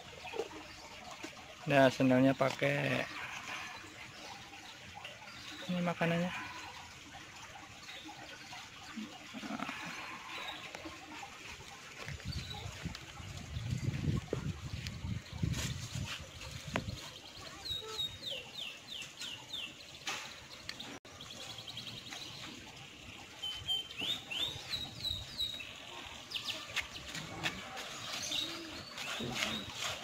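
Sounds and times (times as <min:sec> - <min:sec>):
songbird chirping: 0:07.9 - 0:30.0.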